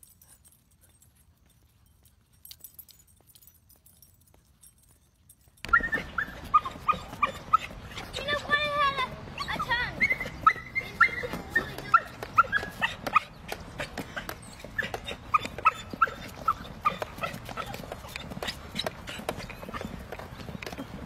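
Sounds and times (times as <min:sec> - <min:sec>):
dog whining and yipping: 0:05.6 - 0:08.6, 0:09.3 - 0:20.0.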